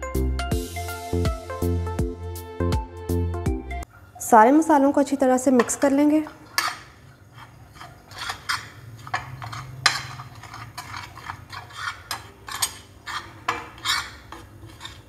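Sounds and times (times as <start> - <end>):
metal spoon scraping ceramic plate: 5.6 - 15.0.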